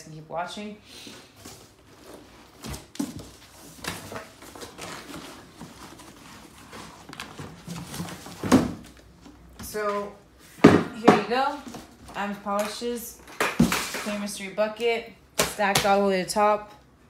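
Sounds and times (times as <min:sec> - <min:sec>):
plastic wrap rustling: 0:01.2 - 0:09.6.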